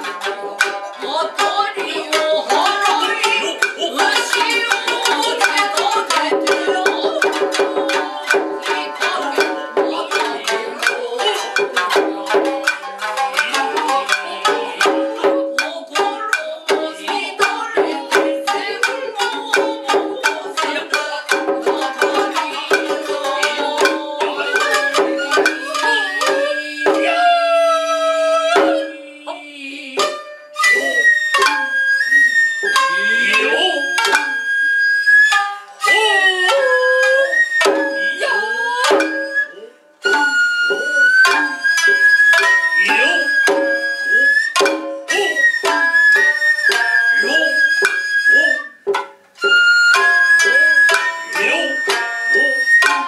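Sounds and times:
drums striking fast rhythm: 0:00.0 - 0:27.4
voices singing held notes: 0:00.0 - 0:34.6, 0:35.6 - 0:53.0
shamisen: 0:00.0 - 0:53.0
bamboo flute long notes: 0:01.5 - 0:29.4, 0:30.0 - 0:53.0.

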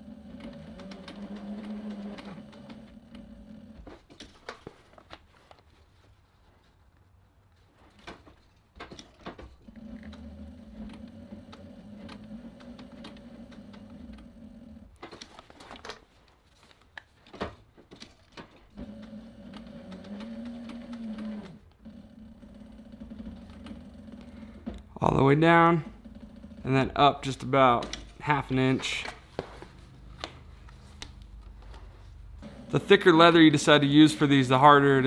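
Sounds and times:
sewing machine motor hum: 0:00.0 - 0:03.9, 0:09.6 - 0:15.0, 0:18.7 - 0:27.9, 0:32.4 - 0:35.0.

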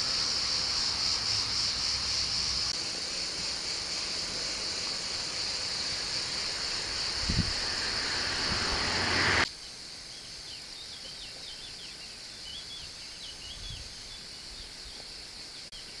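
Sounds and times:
rushing noise: 0:00.0 - 0:09.5
high insect chorus: 0:00.0 - 0:16.0
small birds chirping: 0:00.0 - 0:16.0.

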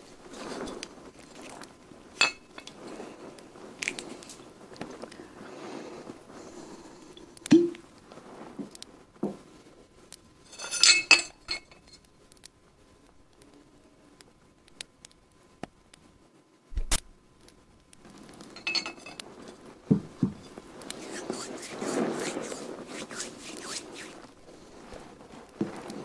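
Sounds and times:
glass clinks and taps: 0:02.2 - 0:02.7, 0:18.6 - 0:19.2
crackly rattle: 0:17.4 - 0:26.0.

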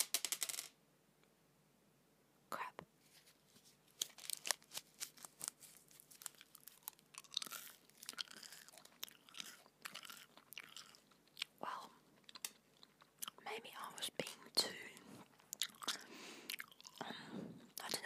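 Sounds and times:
gum chewing mouth smacks: 0:06.3 - 0:13.4, 0:15.2 - 0:18.0.

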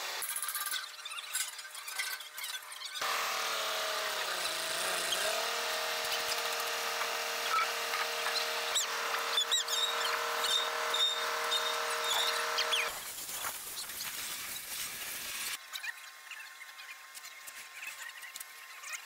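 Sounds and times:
high chirps and squeaks: 0:00.2 - 0:03.0, 0:07.4 - 0:14.8
motor whining: 0:03.0 - 0:13.0.

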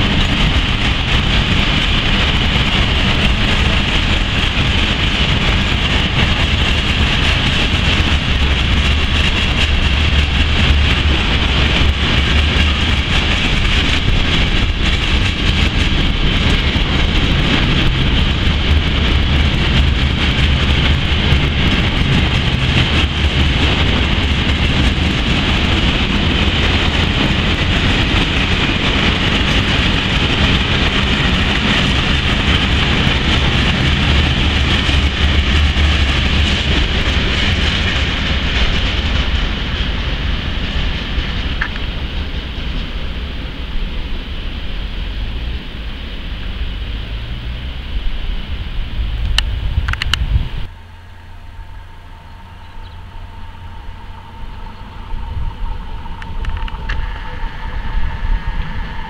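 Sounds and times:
freight train rumbling past: 0:00.0 - 0:59.0.

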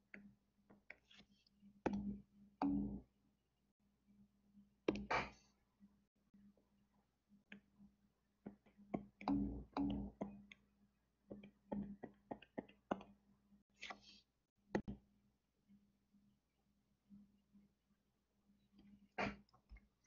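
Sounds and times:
stylus tapping on tablet screen: 0:01.8 - 0:03.0, 0:04.9 - 0:05.4, 0:08.4 - 0:10.7, 0:11.3 - 0:13.2, 0:14.8 - 0:15.0.

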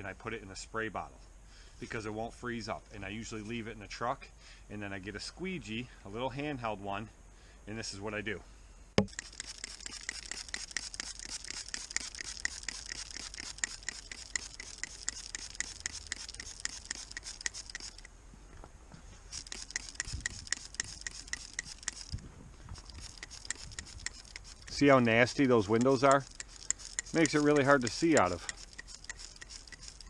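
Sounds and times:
spray bottle squirting: 0:09.0 - 0:18.1, 0:19.3 - 0:22.2, 0:22.8 - 0:24.9, 0:25.7 - 0:30.0
spray trigger clicking: 0:09.0 - 0:18.1, 0:19.3 - 0:22.1, 0:22.8 - 0:24.8, 0:25.8 - 0:30.0.

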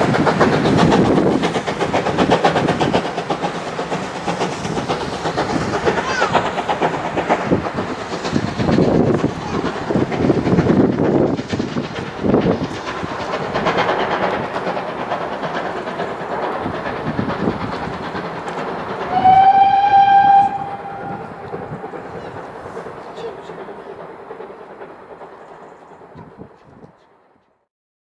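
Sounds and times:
train rumbling and rattling: 0:00.0 - 0:27.6
steam locomotive whistle: 0:19.0 - 0:21.4.

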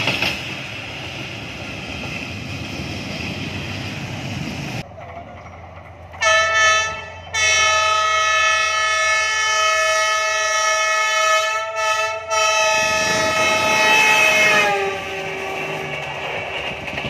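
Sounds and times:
train rumbling: 0:00.0 - 0:17.0
locomotive air horn: 0:06.2 - 0:15.9.

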